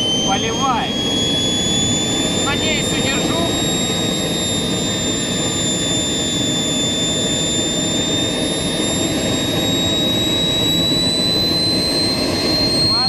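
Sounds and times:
high turbine whine: 0:00.0 - 0:13.0
jet engine roar: 0:00.0 - 0:13.0.

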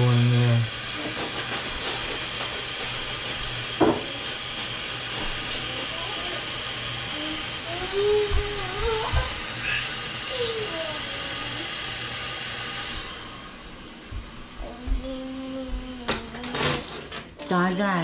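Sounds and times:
knock: 0:03.8 - 0:04.1.

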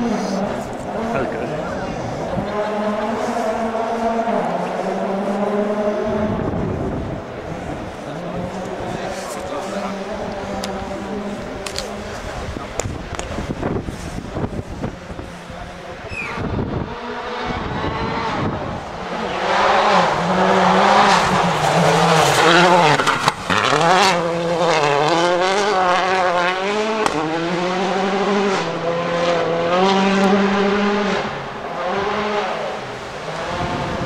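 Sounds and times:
rally car engine revving: 0:00.0 - 0:34.0
exhaust cracks: 0:20.1 - 0:27.4.

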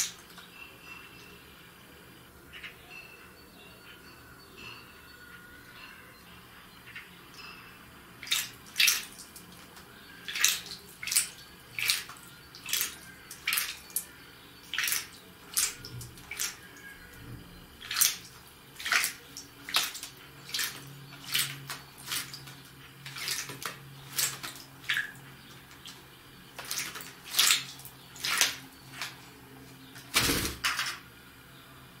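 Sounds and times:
bird splashing in water: 0:08.2 - 0:14.1, 0:14.7 - 0:16.7, 0:17.8 - 0:29.2, 0:29.9 - 0:30.9.

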